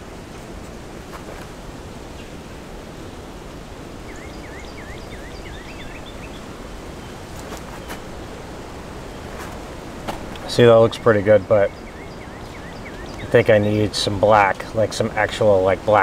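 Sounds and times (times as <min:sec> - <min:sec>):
bird chirping: 0:04.0 - 0:16.0.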